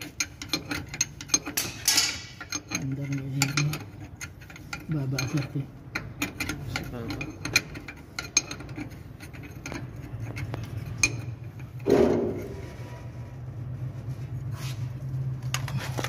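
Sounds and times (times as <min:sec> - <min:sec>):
wrench clicking on a nut: 0:00.1 - 0:11.2.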